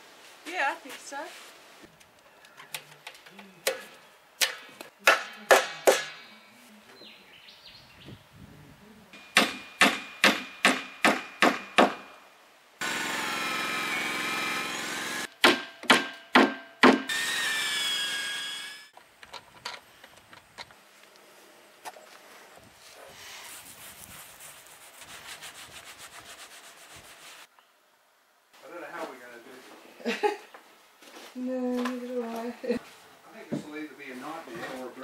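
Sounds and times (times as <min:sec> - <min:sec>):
cordless drill boring into wood: 0:12.8 - 0:15.3, 0:17.1 - 0:18.9.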